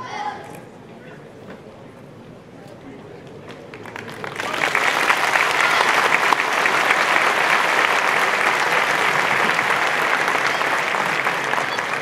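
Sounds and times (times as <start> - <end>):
large audience applauding: 3.7 - 12.0.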